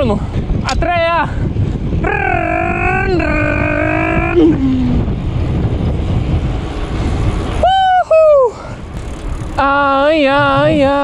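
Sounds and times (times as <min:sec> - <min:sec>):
wind buffeting microphone: 0:00.0 - 0:11.0
man shouting: 0:02.0 - 0:04.6.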